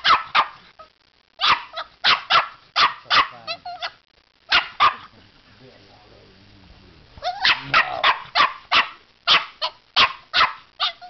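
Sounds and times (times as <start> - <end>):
puppy barking: 0.0 - 0.6, 1.4 - 5.1, 7.2 - 11.0.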